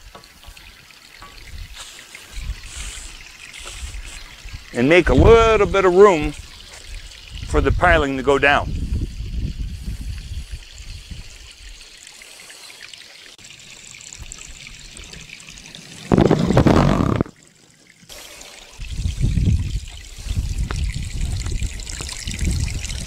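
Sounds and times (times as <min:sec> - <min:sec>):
water rushing through pipes: 0:00.0 - 0:23.0
low rumbling: 0:18.8 - 0:23.0.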